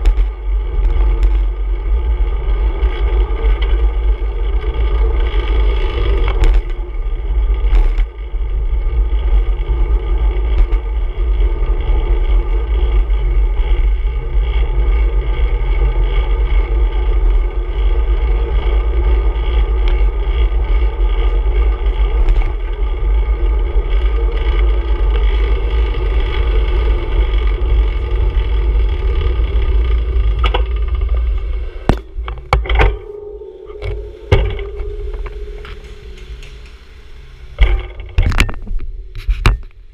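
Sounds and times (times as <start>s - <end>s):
sharp clicks and knocks: 0.0s - 1.6s, 6.0s - 6.9s, 7.6s - 8.2s, 30.2s - 39.9s
bicycle tyre road noise: 0.0s - 39.9s
wind rumble on microphone: 0.0s - 39.9s.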